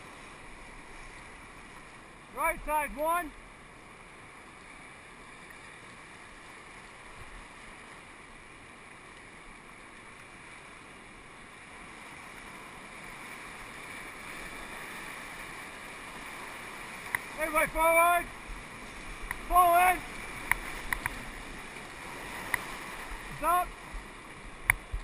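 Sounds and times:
river rapids rushing: 0:12.3 - 0:24.7.

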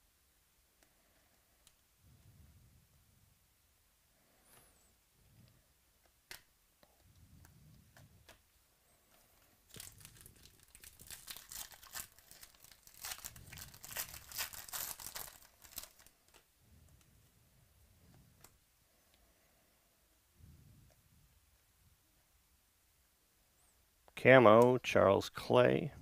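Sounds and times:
foil wrapper tearing and crinkling: 0:09.7 - 0:16.4.

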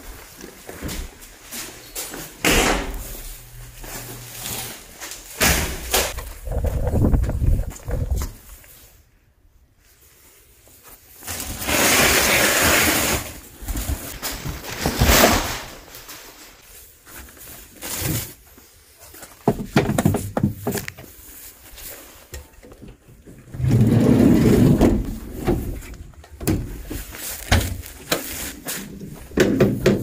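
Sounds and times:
knocks and clatter of handling: 0:19.1 - 0:21.2
plastic packaging crinkling: 0:26.8 - 0:29.2.

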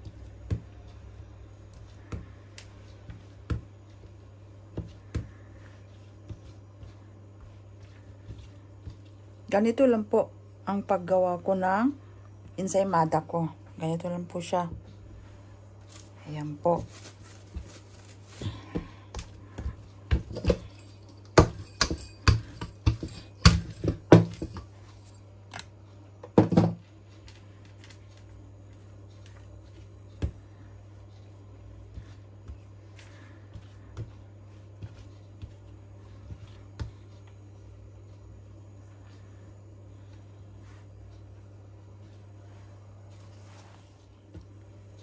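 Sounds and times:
hands tapping bread dough: 0:00.0 - 0:09.2, 0:17.4 - 0:24.8.

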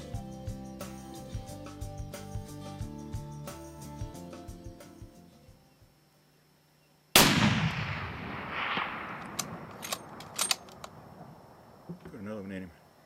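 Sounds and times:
rifle shot with echo: 0:07.2 - 0:11.9
sharp clicks: 0:09.0 - 0:11.0.

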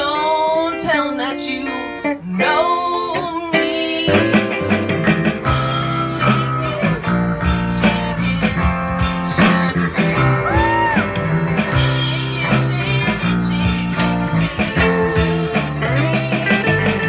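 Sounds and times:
band playing guitars: 0:00.0 - 0:17.0
bass line: 0:04.0 - 0:17.0.

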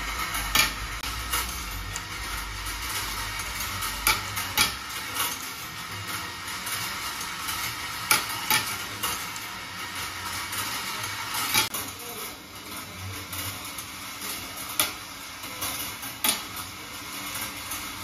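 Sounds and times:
marbles rattling along wire rails: 0:00.0 - 0:18.0
sharp marble clicks: 0:00.2 - 0:11.9.

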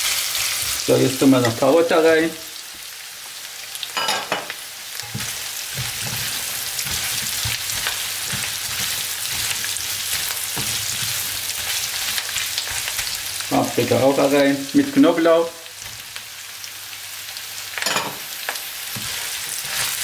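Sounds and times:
food sizzling in frying pan: 0:00.0 - 0:20.0
spoon knocking in pan: 0:04.0 - 0:13.2.

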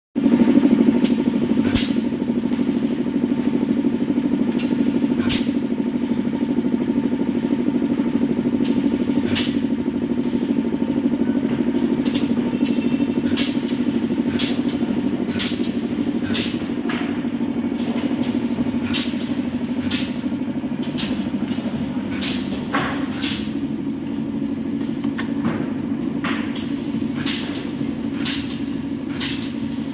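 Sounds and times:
steady low hum: 0:00.2 - 0:29.9
spot welder clack-hisses: 0:01.0 - 0:02.8, 0:04.6 - 0:06.3, 0:13.2 - 0:16.6, 0:18.2 - 0:20.2, 0:20.8 - 0:23.6, 0:26.6 - 0:29.9.

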